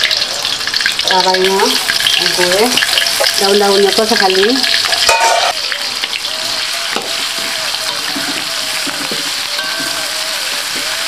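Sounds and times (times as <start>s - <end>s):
spice paste sizzling in oil: 0.0s - 11.0s
metal spatula scraping a pan: 4.8s - 11.0s.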